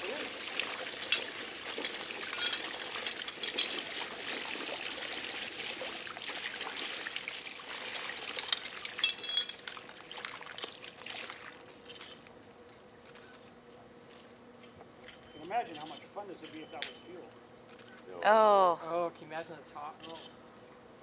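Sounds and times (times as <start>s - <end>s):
water spraying and splashing: 0.0s - 11.7s
metal clinks: 14.6s - 17.3s.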